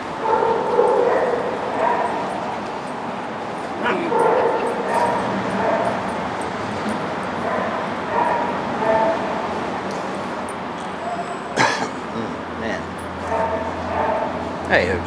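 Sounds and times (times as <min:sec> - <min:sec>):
small dogs yipping and barking: 0:00.2 - 0:11.6, 0:13.0 - 0:14.5.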